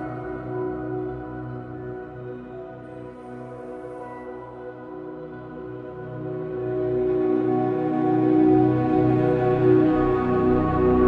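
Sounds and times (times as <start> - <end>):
slow ambient instrumental music: 0.0 - 11.0.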